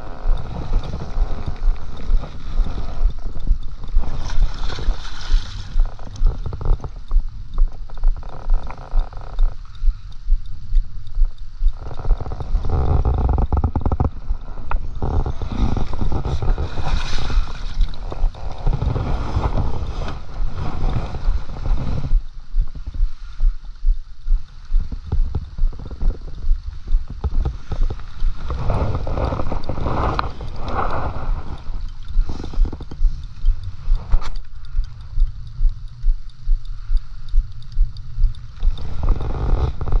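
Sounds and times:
river water sloshing: 0.0 - 7.0, 11.8 - 21.9
wind rumbling on microphone: 0.0 - 40.0.

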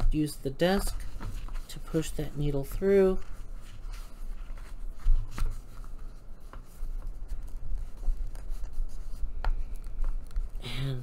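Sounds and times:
paper rubbing: 2.8 - 10.6.

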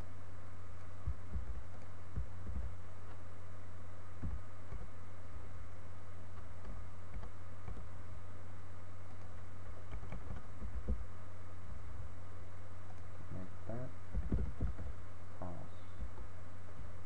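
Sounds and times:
low electrical hum: 0.0 - 17.0
computer keyboard typing: 6.6 - 7.9, 9.0 - 11.0.

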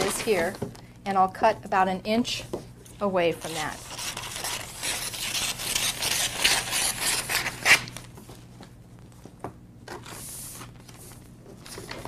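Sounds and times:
paper crackling and rustling: 0.0 - 0.6, 3.4 - 12.0
scissors cutting paper: 3.4 - 7.9.

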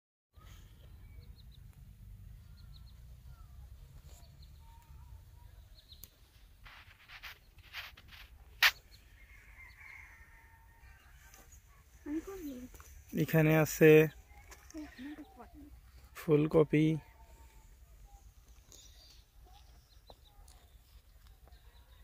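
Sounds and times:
small birds chirping: 0.4 - 22.0
short scuffing noises: 6.6 - 8.9.

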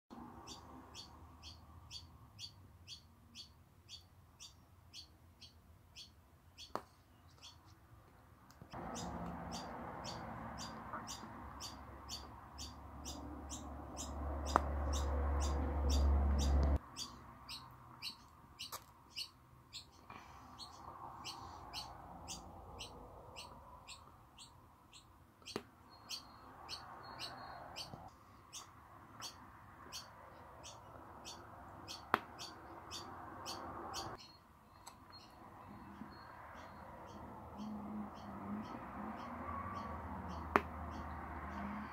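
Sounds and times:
bird chirping: 0.1 - 7.8, 8.7 - 41.9.

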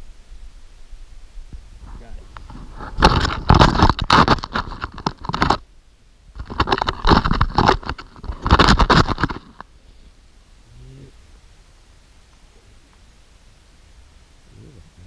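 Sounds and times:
camera scraping in ice chips: 2.5 - 5.6, 6.4 - 9.6.

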